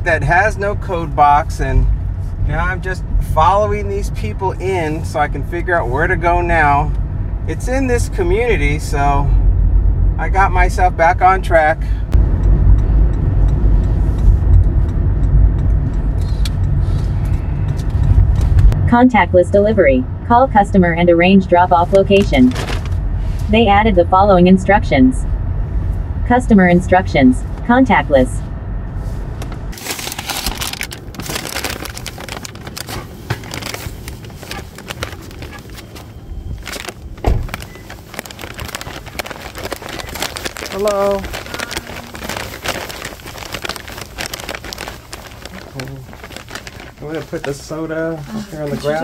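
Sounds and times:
car engine and tyre rumble: 0.0 - 49.0
packaging crinkling and rustling: 22.3 - 23.0, 29.7 - 49.0
car door shutting: 37.1 - 37.8.

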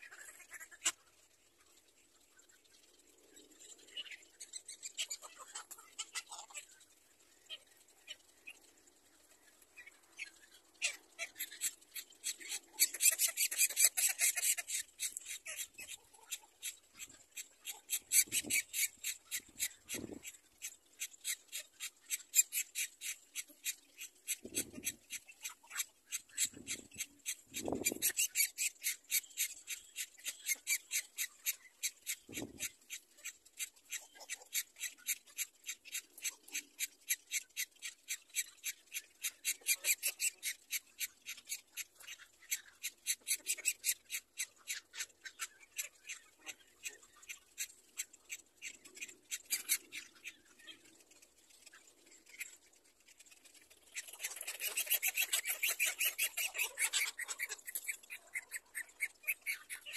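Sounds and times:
animal high chirps: 54.0 - 59.9.

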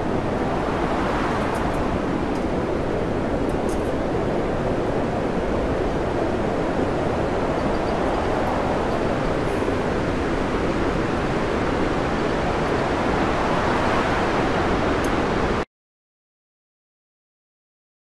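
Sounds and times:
storm wind: 0.0 - 15.6.

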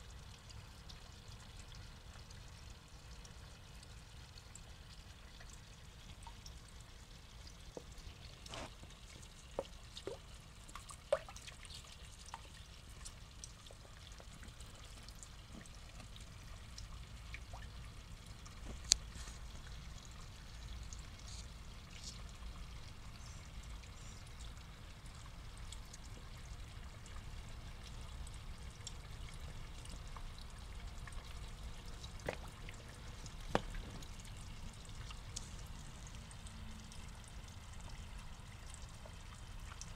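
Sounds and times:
pond water trickling: 0.0 - 39.9
small splashes: 31.6 - 35.6.

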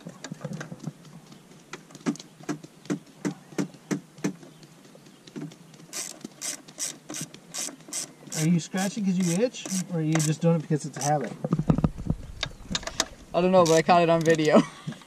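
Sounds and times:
ratchet wrench clicking: 5.9 - 8.5, 9.1 - 10.4.

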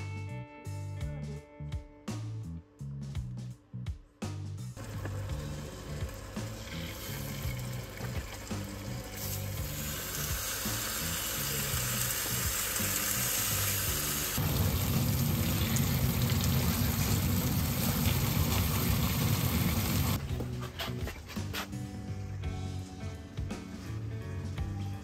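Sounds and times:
meat sizzling in hot oil: 4.8 - 20.2.

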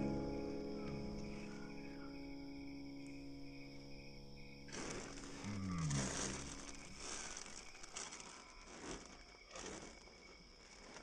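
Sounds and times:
plastic bag crinkling: 4.7 - 9.9.

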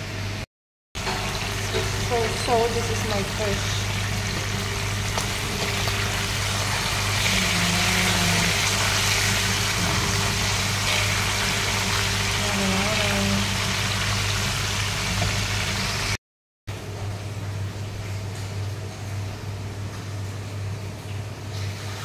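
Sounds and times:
fish sizzling in hot oil: 1.0 - 16.2.

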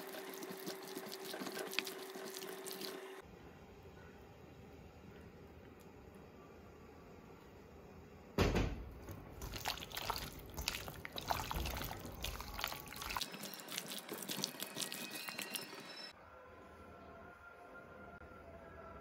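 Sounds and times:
hand squishing chicken in bowl: 9.4 - 13.2.

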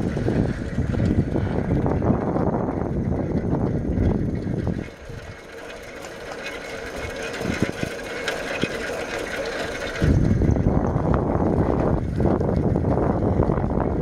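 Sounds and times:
bicycle rattling and ticking: 0.0 - 14.0
wind buffeting microphone: 0.0 - 14.0.

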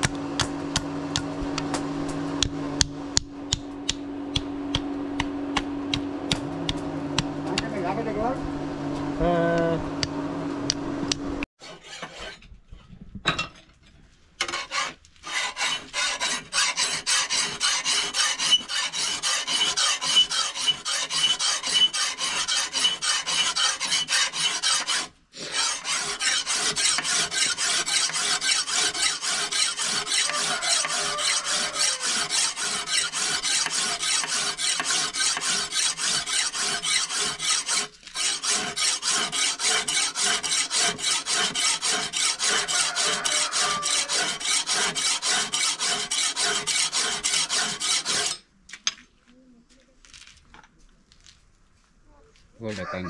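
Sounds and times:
hand file rasping: 11.6 - 12.4, 14.4 - 48.4.

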